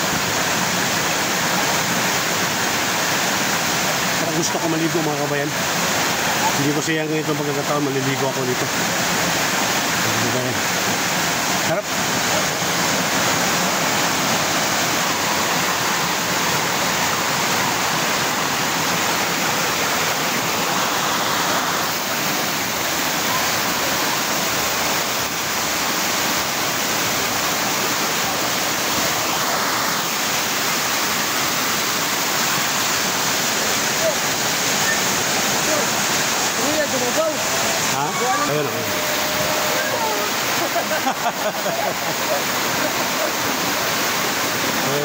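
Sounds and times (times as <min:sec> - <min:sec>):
stream rushing over rocks: 0:00.0 - 0:45.0.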